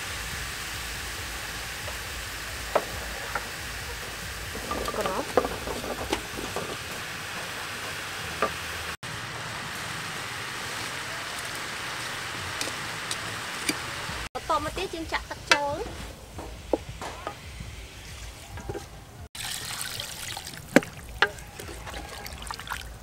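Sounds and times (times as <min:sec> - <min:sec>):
beef sizzling in a pot: 0:00.0 - 0:18.8, 0:19.4 - 0:23.0
wooden spatula scraping and knocking: 0:02.5 - 0:09.0, 0:15.3 - 0:19.1.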